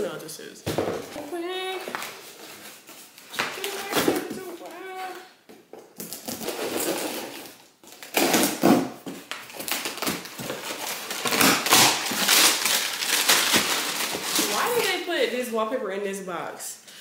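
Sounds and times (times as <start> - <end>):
cardboard flaps rustling: 0.9 - 5.2.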